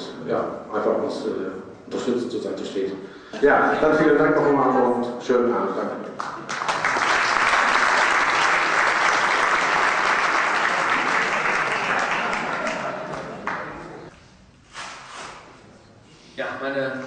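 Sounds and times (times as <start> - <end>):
audience applauding: 6.2 - 14.1.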